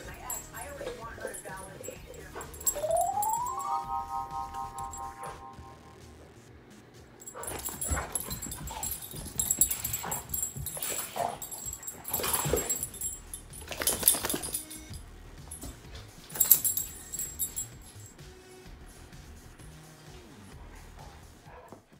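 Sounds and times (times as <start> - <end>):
dogs whining: 0.3 - 4.1, 7.2 - 14.9
dogs barking: 7.2 - 14.7, 20.6 - 21.9
dogs scuffling: 7.2 - 18.1.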